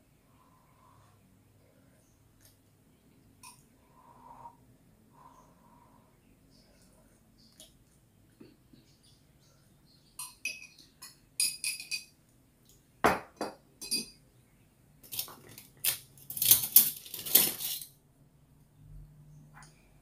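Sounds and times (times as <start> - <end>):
cutlery and dish clatter: 10.2 - 12.1, 13.4 - 14.2, 15.1 - 17.9
spoon clinking against mug: 10.2 - 12.2, 13.8 - 14.2.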